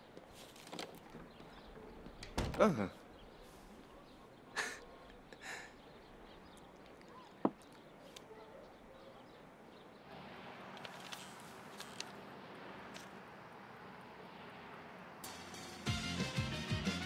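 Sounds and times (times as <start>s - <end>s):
soft rustles: 0.1s - 2.1s.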